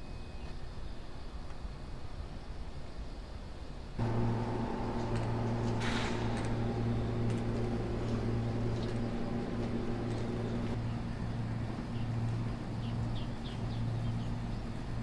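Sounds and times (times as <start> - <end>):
low hum: 4.0 - 15.0.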